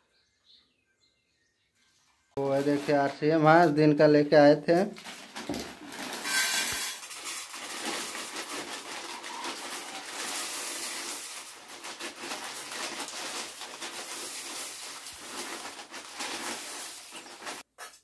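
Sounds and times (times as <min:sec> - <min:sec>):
foil bag crinkling: 0:02.4 - 0:03.8, 0:04.7 - 0:17.7
dry flakes pattering on metal: 0:06.2 - 0:17.7.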